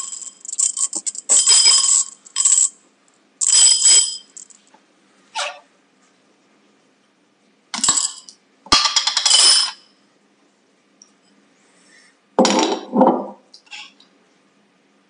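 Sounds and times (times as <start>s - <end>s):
glass jar and coin rattling: 0.0s - 2.8s, 3.4s - 4.6s.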